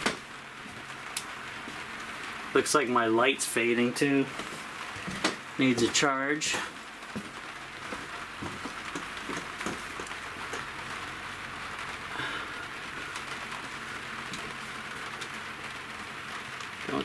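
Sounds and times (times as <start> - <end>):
rain pattering on roof: 0.0 - 17.0.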